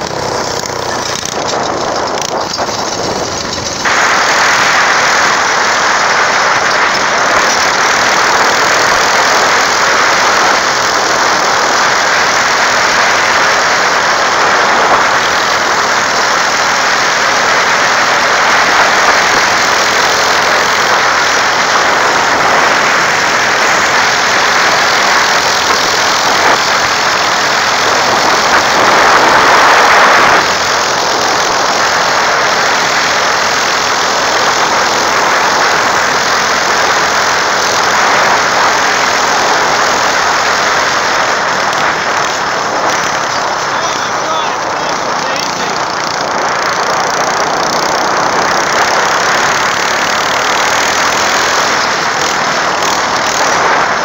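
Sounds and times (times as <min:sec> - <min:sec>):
go-kart engine running: 0:00.0 - 0:54.0
road noise: 0:00.0 - 0:54.0.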